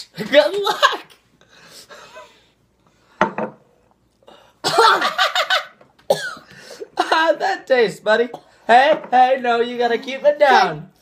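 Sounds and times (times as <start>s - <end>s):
person coughing and gagging: 4.6s - 5.2s, 6.1s - 7.3s.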